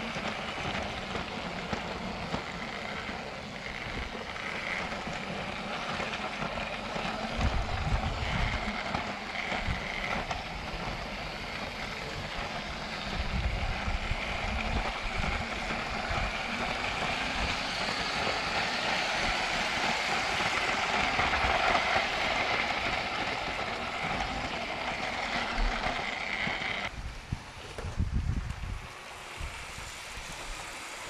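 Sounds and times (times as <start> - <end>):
toy train motor whine: 0.0 - 26.9, 27.8 - 31.0
wind buffeting microphone: 6.3 - 26.0, 26.9 - 30.6.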